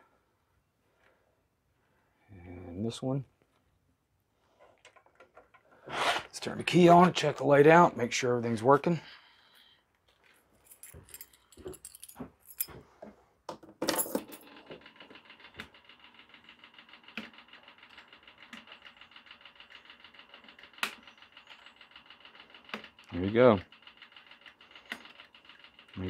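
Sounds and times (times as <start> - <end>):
key clattering: 10.3 - 12.7, 13.8 - 14.5
key ring jingling: 10.6 - 12.7.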